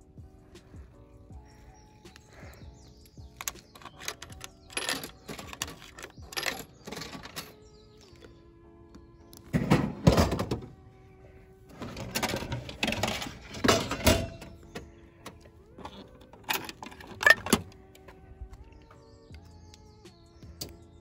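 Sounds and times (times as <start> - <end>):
soft background music: 0.0 - 21.0
coins clinking: 3.4 - 7.6
plastic flap rattling: 3.4 - 7.6, 9.5 - 10.8, 11.7 - 17.8.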